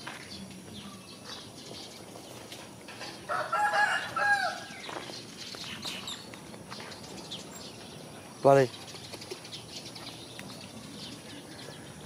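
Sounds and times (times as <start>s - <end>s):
small birds chirping: 0.0s - 12.0s
rooster crowing: 3.3s - 4.7s.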